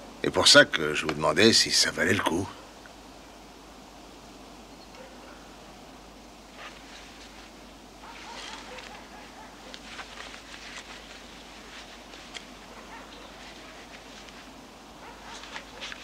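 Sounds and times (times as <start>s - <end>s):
faint low hum: 0.0s - 16.0s
crumpled paper crinkling: 8.1s - 16.0s.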